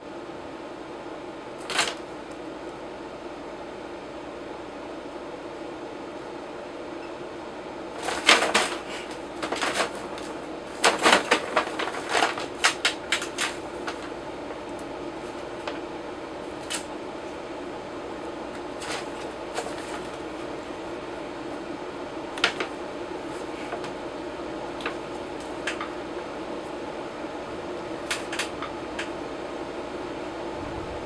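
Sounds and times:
steady hum: 0.0s - 31.0s
paper bag crinkling: 1.6s - 2.0s, 7.9s - 16.9s, 18.6s - 21.1s, 22.4s - 24.0s.

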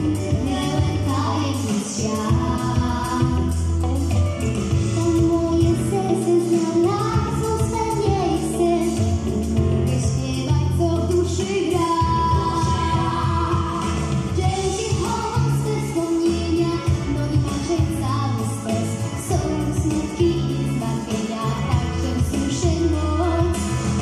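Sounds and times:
girl singing into a microphone: 0.0s - 4.1s, 4.8s - 24.0s
recorded backing track: 0.0s - 24.0s.

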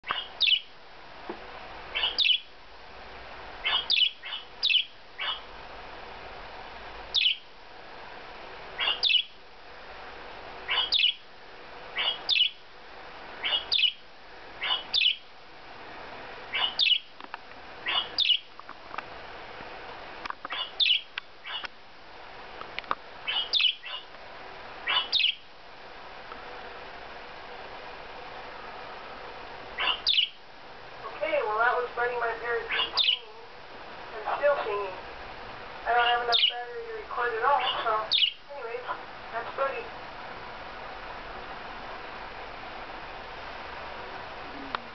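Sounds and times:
budgerigar chirps: 0.0s - 0.7s, 1.9s - 2.5s, 3.6s - 5.5s, 7.1s - 7.4s, 8.8s - 9.4s, 10.7s - 11.2s, 12.0s - 12.6s, 13.4s - 14.0s, 14.6s - 15.2s, 16.5s - 17.1s, 17.8s - 18.5s, 20.5s - 21.7s, 23.2s - 24.1s, 24.8s - 25.4s, 29.8s - 30.4s, 32.7s - 33.3s, 35.9s - 36.6s, 37.6s - 38.4s
steady low hum: 0.0s - 44.9s.

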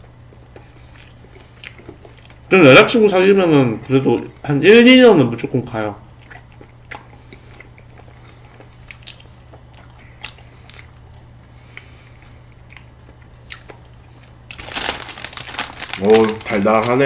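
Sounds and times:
steady low hum: 0.0s - 17.0s
chewing pastry: 0.2s - 2.5s, 6.0s - 17.0s
plastic wrapping crinkling: 14.5s - 17.0s.

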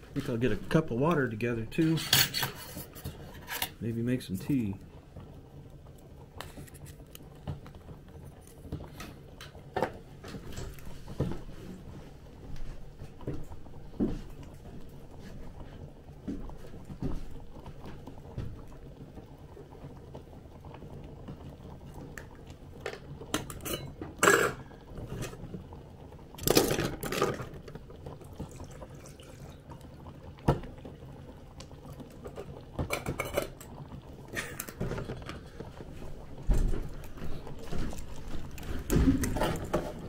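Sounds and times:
cookware clinking: 2.0s - 2.8s, 23.4s - 24.6s, 32.3s - 33.6s
water poured into cup: 26.4s - 39.8s.

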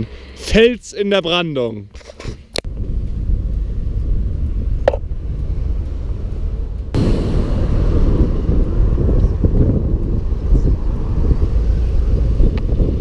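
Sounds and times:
road and engine rumble: 0.0s - 13.0s
wind rushing over microphone: 2.7s - 13.0s.

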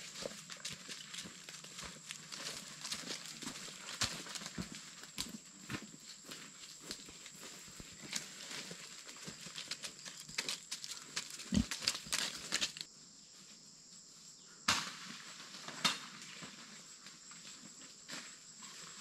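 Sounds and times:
pig rustling through dry leaves: 0.0s - 5.1s, 7.2s - 12.9s.

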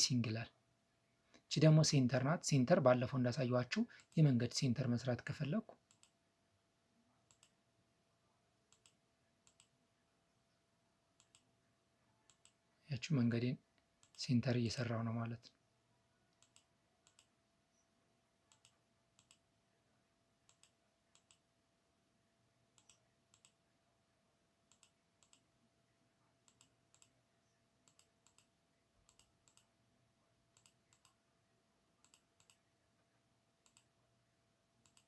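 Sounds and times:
faint steady hum: 0.0s - 35.0s
computer mouse clicks: 5.8s - 6.2s, 7.3s - 7.6s, 8.7s - 9.8s, 11.2s - 11.5s, 12.3s - 12.6s, 16.3s - 17.3s, 18.5s - 19.4s, 20.5s - 21.5s, 22.8s - 23.6s, 24.7s - 25.5s, 26.4s - 27.2s, 27.8s - 29.7s, 30.5s - 31.2s, 32.0s - 32.7s, 33.6s - 33.9s, 34.8s - 35.0s.

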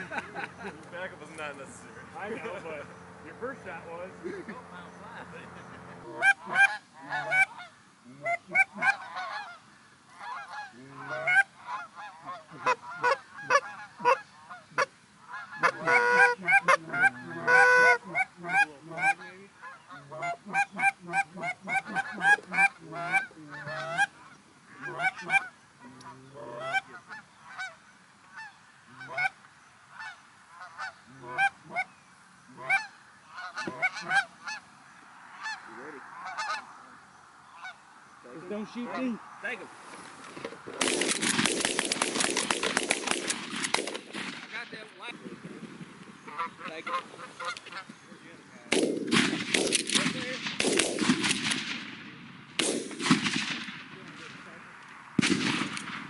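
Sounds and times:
goose calls honking: 5.5s - 39.6s, 46.2s - 48.5s.

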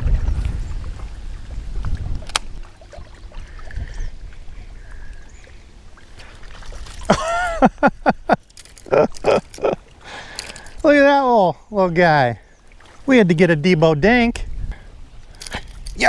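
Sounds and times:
wind buffeting microphone: 0.0s - 5.3s, 13.9s - 16.0s.

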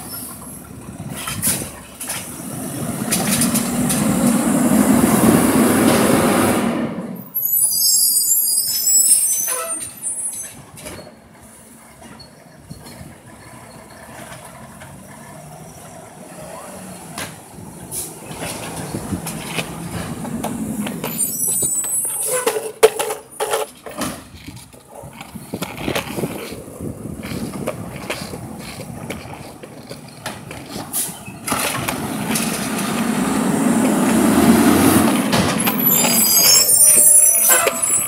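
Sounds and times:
garbage truck diesel engine: 0.0s - 38.0s
high brake squeal: 7.2s - 11.2s, 12.0s - 14.4s, 15.2s - 17.1s, 21.0s - 23.6s, 34.4s - 38.0s.

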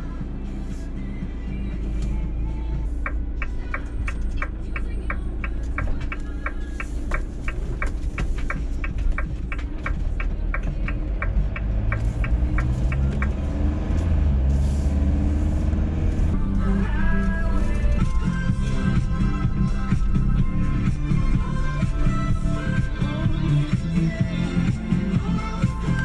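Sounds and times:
turn signal ticking: 0.0s - 26.0s
van engine and road rumble: 0.0s - 26.0s.

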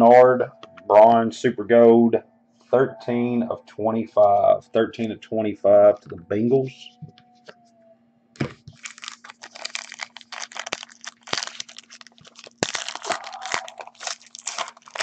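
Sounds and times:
foil wrapper tearing and crinkling: 8.4s - 15.0s.

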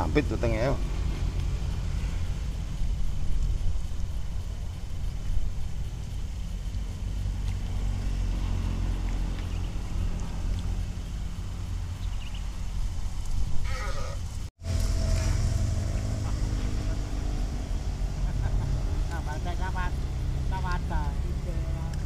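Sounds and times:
brief pitched call: 13.6s - 16.6s.

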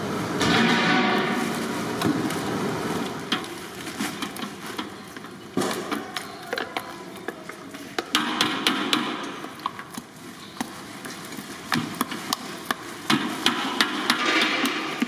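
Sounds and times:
kitchen clicks and knocks: 3.3s - 10.0s.

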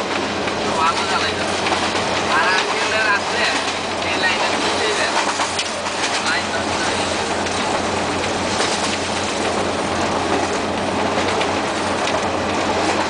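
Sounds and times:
locomotive engine hum: 0.0s - 13.0s
rail joint clacks: 0.0s - 13.0s
wheel-on-rail noise: 0.0s - 13.0s.

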